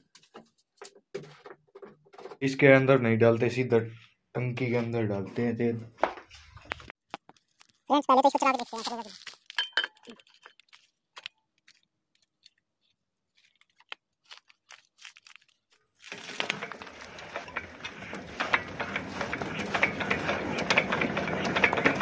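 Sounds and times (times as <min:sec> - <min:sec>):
diesel pump engine clattering: 0:16.5 - 0:22.0.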